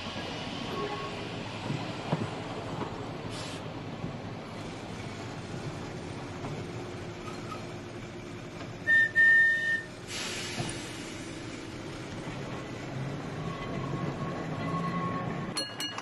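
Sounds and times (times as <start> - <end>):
electric tram rumbling on track: 0.0 - 16.0
tram whistle toots: 0.6 - 1.3, 8.8 - 10.7
brief hiss: 3.3 - 3.6, 10.0 - 11.4.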